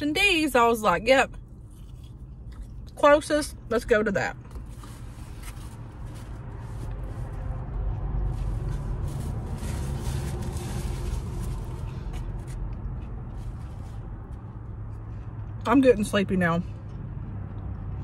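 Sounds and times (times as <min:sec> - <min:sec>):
steady low rumble: 0:00.0 - 0:18.0
vehicle passing: 0:04.6 - 0:18.0
paper wrapper rustling: 0:08.4 - 0:12.1.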